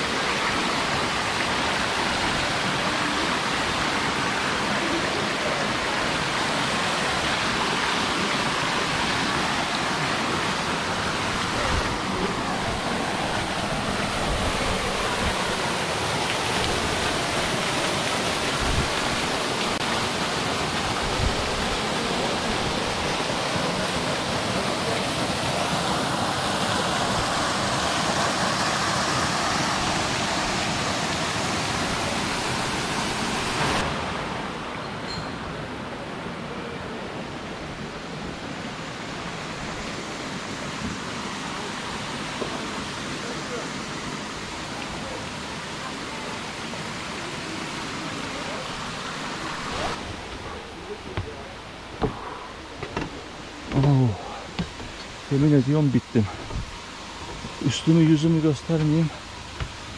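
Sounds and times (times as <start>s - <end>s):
stream running over rocks: 0.0s - 59.9s
waterfall rushing: 0.0s - 59.9s
low thumps: 50.1s - 55.2s.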